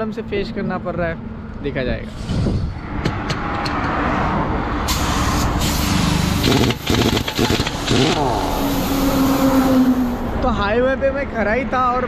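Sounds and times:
roadside traffic: 0.0 - 12.0
pneumatic impact wrench hammering: 4.9 - 8.3.

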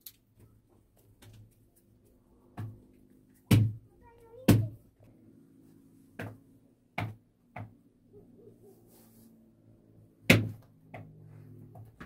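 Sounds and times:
hands thumping bread dough: 3.5 - 4.8, 10.3 - 11.2.

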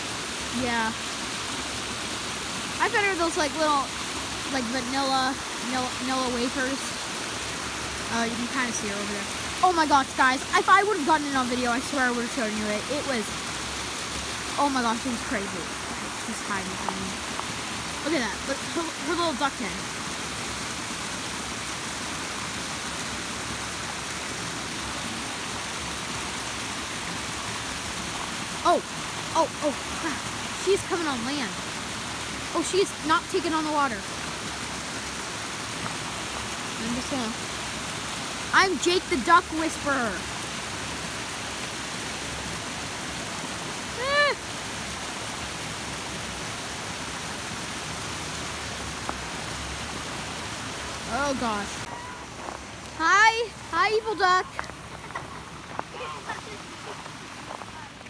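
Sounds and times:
water pouring over waterfall: 0.0 - 58.0.

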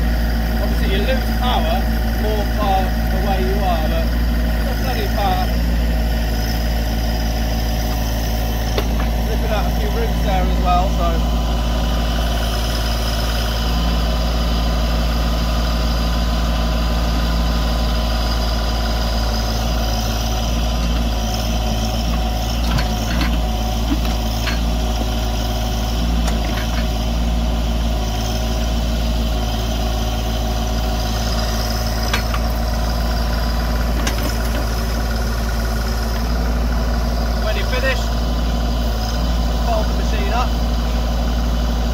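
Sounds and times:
tractor diesel engine running: 0.0 - 41.9
backhoe knocks: 8.7 - 9.3, 22.1 - 25.2, 32.0 - 32.6, 33.8 - 35.2.

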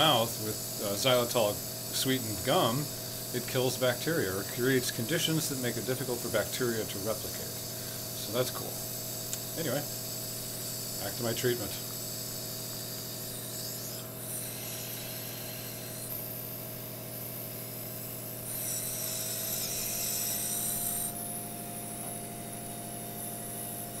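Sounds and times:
airy hiss of breathing: 0.0 - 6.2, 7.2 - 20.8
nebulizer compressor humming: 0.0 - 24.0.

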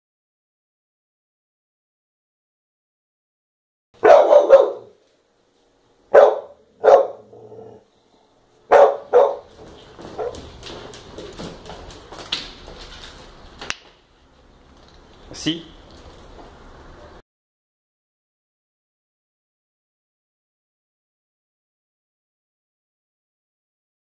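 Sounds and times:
dog barking: 4.0 - 5.0, 6.1 - 7.8, 8.7 - 9.5, 10.1 - 10.5
scuffling: 9.0 - 14.0.

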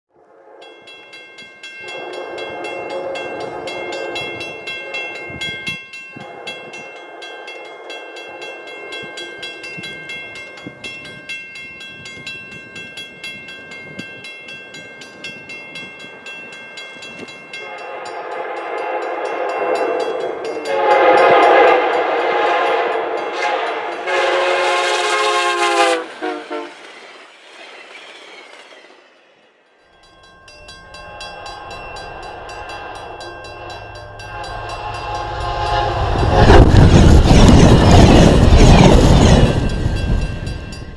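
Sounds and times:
rush of passing train: 0.1 - 40.9
locomotive air horn blasts: 1.8 - 5.6, 6.2 - 8.6, 17.6 - 26.8, 33.0 - 37.1.

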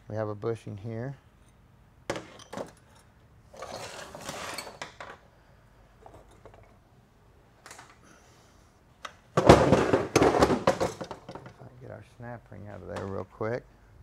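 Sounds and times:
metal parts scraping and clinking: 2.2 - 5.2.

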